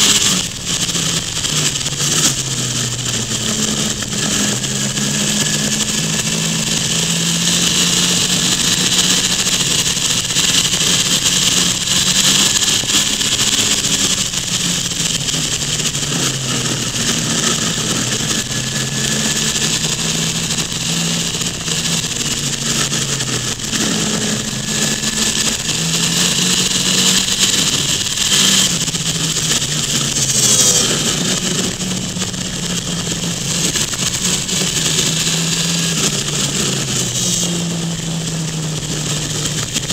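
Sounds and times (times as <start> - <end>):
car engine running: 0.0 - 39.9
wind and road noise: 0.0 - 39.9.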